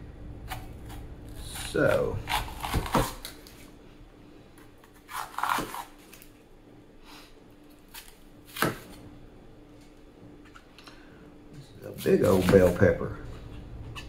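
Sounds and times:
knife slicing pepper: 0.4s - 3.6s, 4.8s - 6.2s, 11.9s - 13.0s.

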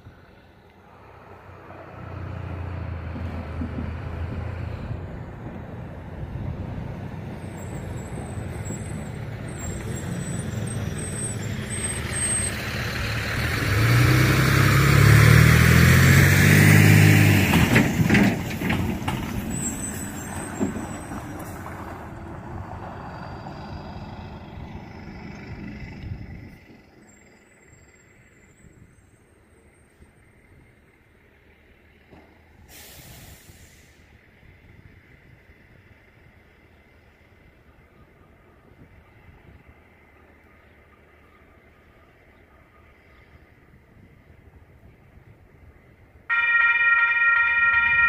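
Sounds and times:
truck engine passing: 0.0s - 43.1s.

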